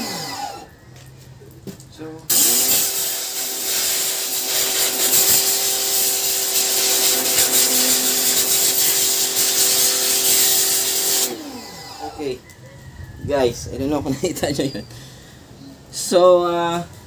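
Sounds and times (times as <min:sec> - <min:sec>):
water jet hissing into foam: 0:02.3 - 0:11.7
pressure washer motor hum: 0:02.3 - 0:12.4.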